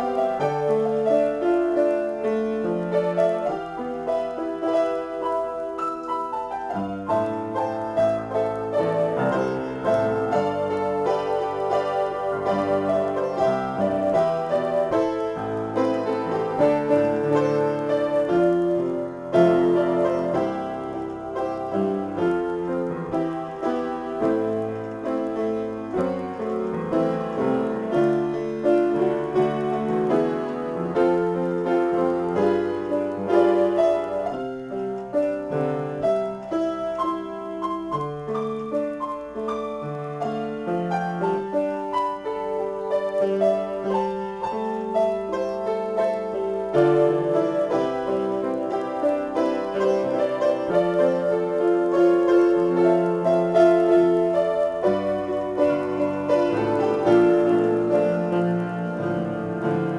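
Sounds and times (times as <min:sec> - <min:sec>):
solo piano improvisation: 0:00.0 - 0:59.9.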